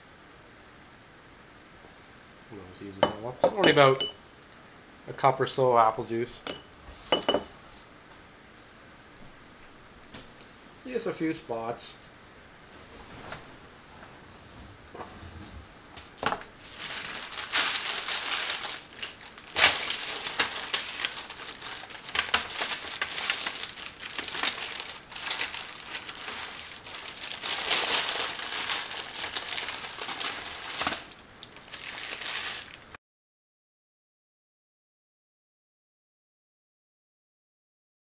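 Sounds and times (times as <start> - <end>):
paper and cling wrap crinkling: 16.0 - 33.0.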